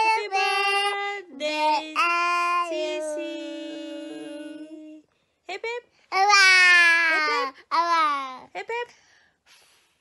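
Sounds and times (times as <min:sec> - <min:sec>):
boy and woman singing: 0:00.0 - 0:05.1.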